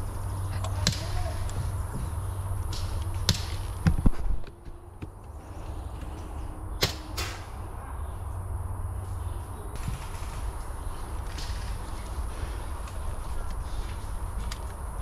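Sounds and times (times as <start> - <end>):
airsoft rifle shots: 2.7 - 3.8, 6.8 - 7.6.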